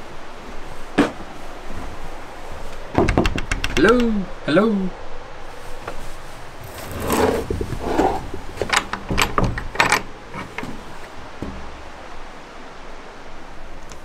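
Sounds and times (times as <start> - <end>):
iron latch and hinges rattling: 6.6 - 12.0
wooden door scraping: 6.6 - 12.0.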